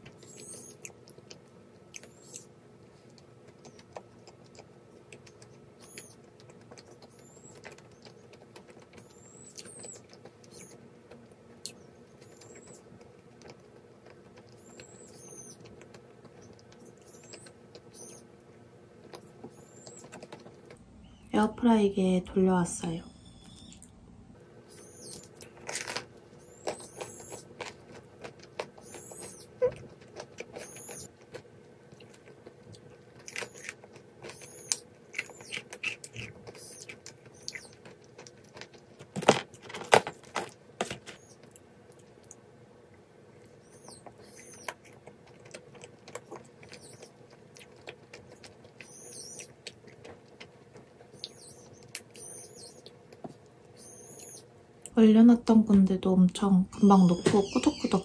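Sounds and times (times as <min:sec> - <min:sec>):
faint steady hum: 0:00.0 - 0:58.0
sparrow chirping: 0:00.2 - 0:00.8, 0:04.9 - 0:06.2, 0:06.8 - 0:08.2, 0:09.0 - 0:10.8, 0:11.8 - 0:12.9, 0:14.6 - 0:15.7, 0:16.4 - 0:18.3, 0:19.2 - 0:20.2, 0:24.7 - 0:25.3, 0:26.4 - 0:27.5, 0:28.8 - 0:29.8, 0:30.5 - 0:31.1, 0:34.3 - 0:37.8, 0:43.6 - 0:44.9, 0:46.2 - 0:47.2, 0:48.8 - 0:49.6, 0:51.1 - 0:52.9, 0:53.7 - 0:54.5, 0:56.8 - 0:58.0
bread being torn and chewed: 0:00.2 - 0:15.0, 0:25.0 - 0:53.7.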